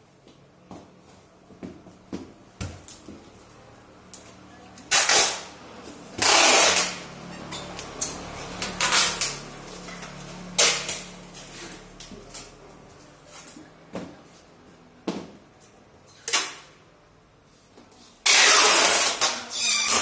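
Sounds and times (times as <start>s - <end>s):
packing tape tearing off roll: 4.9s - 5.5s, 6.2s - 7.0s, 8.6s - 9.9s, 10.5s - 11.2s, 18.2s - 20.0s.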